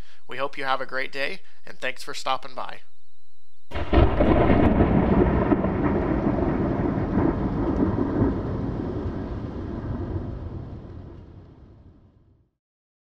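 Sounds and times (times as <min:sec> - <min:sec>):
thunder crash and rumble: 0:03.7 - 0:12.5.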